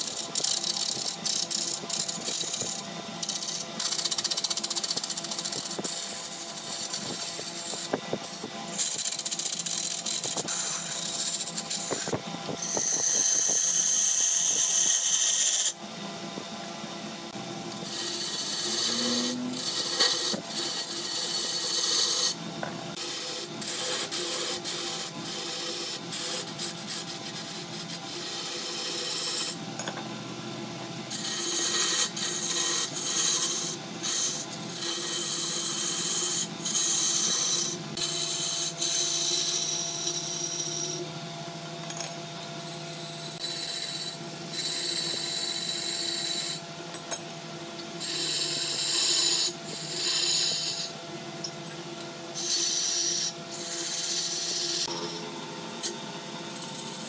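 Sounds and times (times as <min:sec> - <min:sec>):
lathe tool scraping wood: 0:00.0 - 0:15.8, 0:17.8 - 0:29.6, 0:31.1 - 0:41.0, 0:43.3 - 0:46.6, 0:48.0 - 0:51.0, 0:52.4 - 0:55.0
lathe humming: 0:17.3 - 0:22.3.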